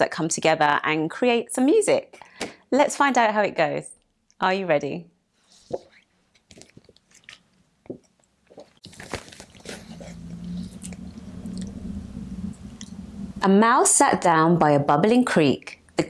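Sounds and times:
steady low hum: 0:08.9 - 0:15.1.

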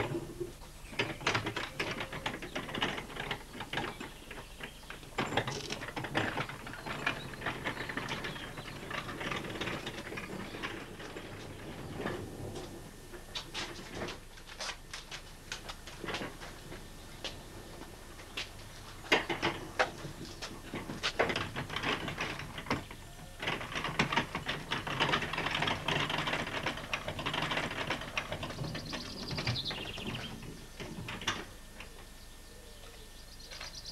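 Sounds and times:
ratchet-like mechanical clatter: 0:23.4 - 0:29.1.

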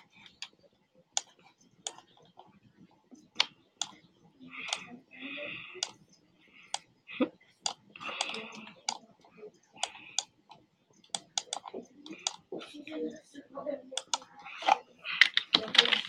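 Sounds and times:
computer mouse clicks: 0:05.8 - 0:06.0, 0:07.6 - 0:09.0, 0:09.8 - 0:12.4, 0:14.0 - 0:16.0.

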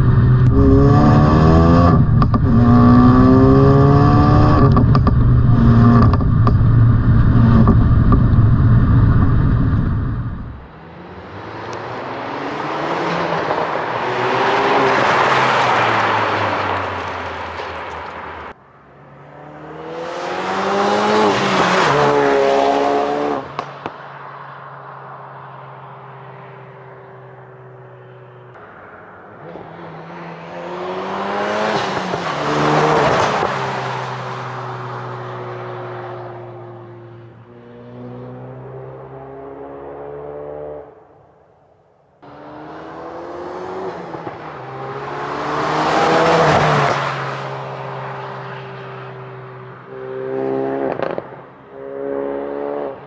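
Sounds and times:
car engine accelerating past: 0:42.2 - 0:53.0.

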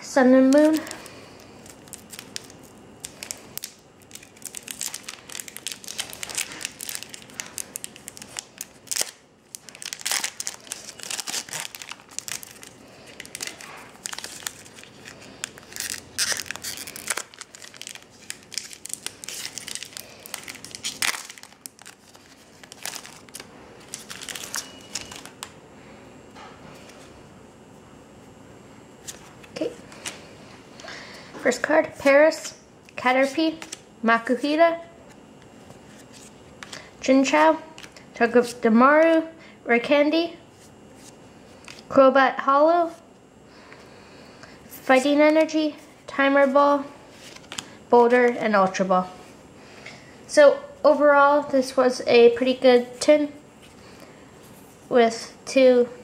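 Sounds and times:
foil wrapper crinkling and tearing: 0:00.4 - 0:25.6, 0:47.1 - 0:47.8.

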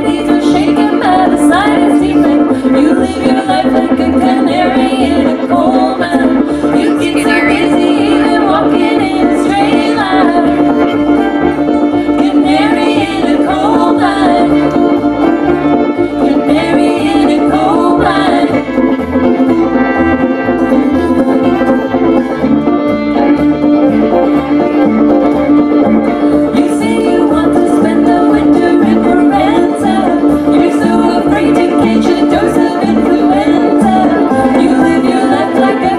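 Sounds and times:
women singing: 0:00.0 - 0:19.0, 0:26.3 - 0:35.9
banjo: 0:00.0 - 0:35.9
plucked upright bass: 0:00.0 - 0:35.9.

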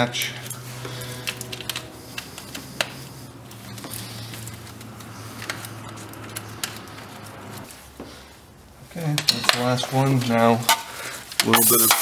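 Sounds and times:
gloved hands handling: 0:00.0 - 0:08.4
steady low hum: 0:00.0 - 0:08.9.

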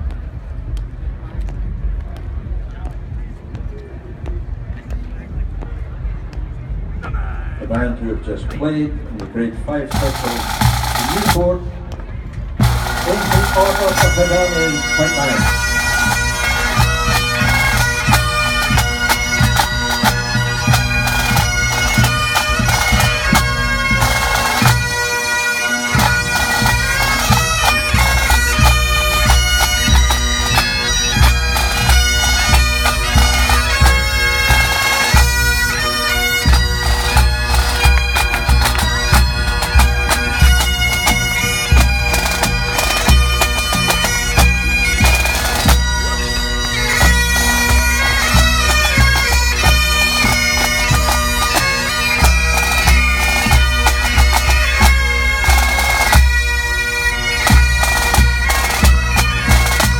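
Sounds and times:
snare drums: 0:09.2 - 0:11.5, 0:12.6 - 0:16.2
bagpipes playing: 0:09.8 - 0:12.0, 0:12.6 - 0:59.9.

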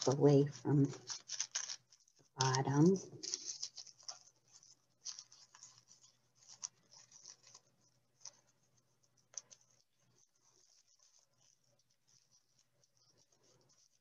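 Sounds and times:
tissue paper rustling: 0:00.0 - 0:14.0.

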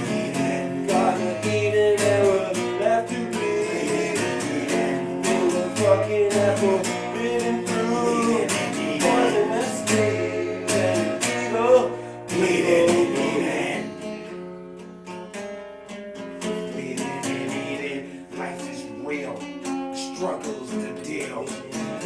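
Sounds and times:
person singing: 0:00.0 - 0:14.0, 0:16.5 - 0:19.0
acoustic guitar strumming: 0:00.0 - 0:22.0.

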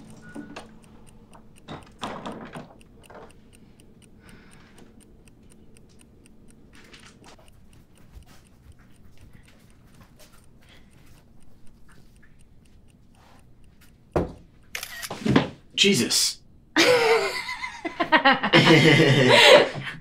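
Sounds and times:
steady ticking: 0:00.0 - 0:14.9.

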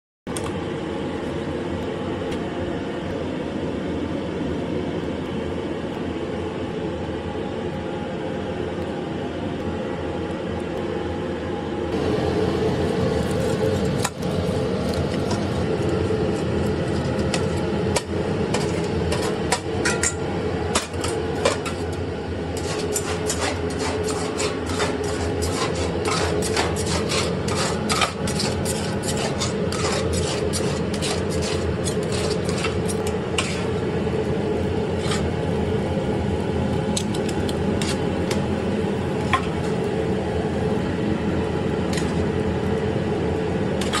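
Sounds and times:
steady mechanical hum: 0:00.3 - 0:44.0
knife and tongs scraping metal: 0:15.2 - 0:22.0, 0:22.6 - 0:33.8, 0:35.0 - 0:35.4, 0:37.0 - 0:38.0, 0:43.8 - 0:44.0.

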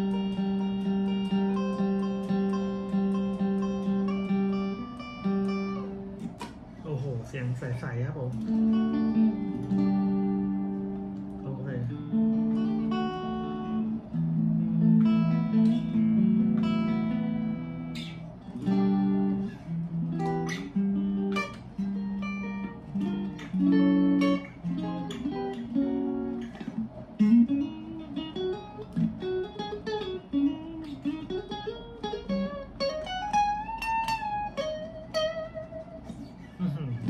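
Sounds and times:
clean electric guitar: 0:00.0 - 0:37.0.

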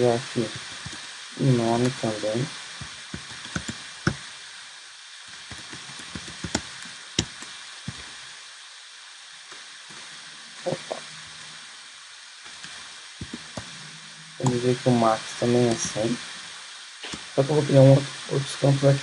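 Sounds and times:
background hiss: 0:00.0 - 0:19.0
keyboard keystrokes clicking: 0:03.1 - 0:04.2.

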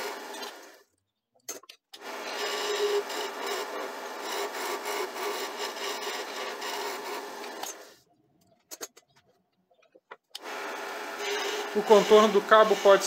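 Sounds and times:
tool scraping wood on lathe: 0:00.0 - 0:00.8, 0:02.1 - 0:08.0, 0:10.7 - 0:13.0
lathe humming: 0:02.0 - 0:07.9, 0:10.4 - 0:13.0.

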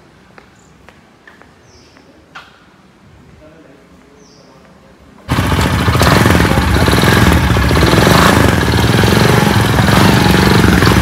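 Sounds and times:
motorcycle engine running: 0:05.3 - 0:11.0.

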